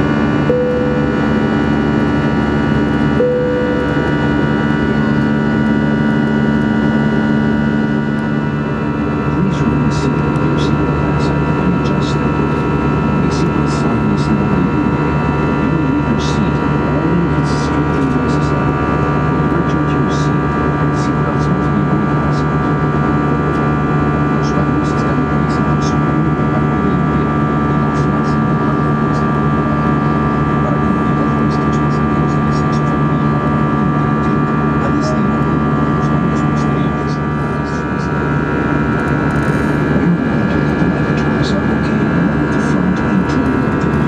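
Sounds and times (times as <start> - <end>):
whining tones: 0.0 - 11.3
jet engine drone: 0.0 - 44.0.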